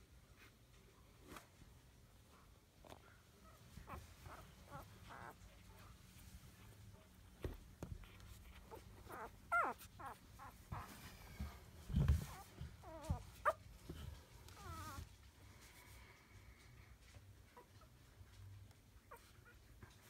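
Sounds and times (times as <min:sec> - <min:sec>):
puppies whimpering and squeaking: 0:03.8 - 0:05.6, 0:08.0 - 0:15.2.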